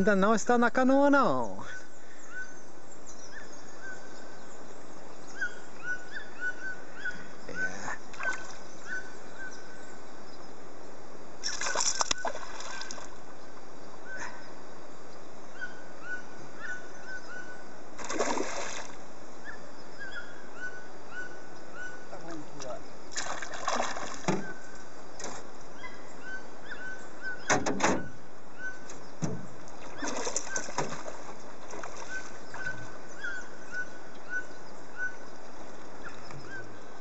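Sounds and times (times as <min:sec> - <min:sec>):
fish splashing at water surface: 0:11.4 - 0:13.1, 0:18.0 - 0:19.0, 0:23.1 - 0:24.5, 0:29.8 - 0:32.6.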